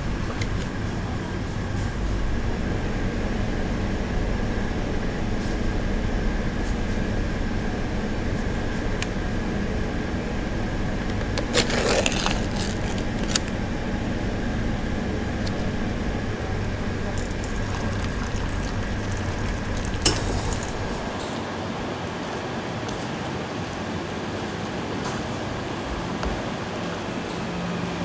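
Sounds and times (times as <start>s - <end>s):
low hum of machinery: 0.0s - 28.0s
paper lid peeled off: 11.4s - 13.6s.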